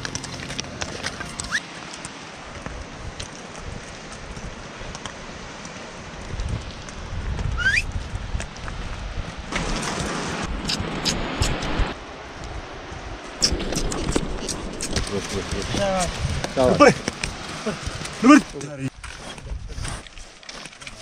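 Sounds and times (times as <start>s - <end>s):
horse hooves on stony trail: 0.0s - 21.0s
wind noise on microphone: 2.5s - 18.2s, 18.9s - 20.2s
rising whistle: 7.6s - 7.9s.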